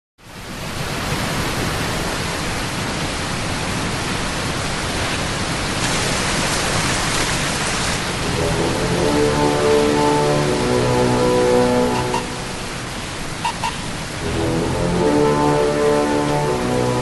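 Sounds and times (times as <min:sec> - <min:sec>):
heavy rain pouring: 0:00.4 - 0:17.0.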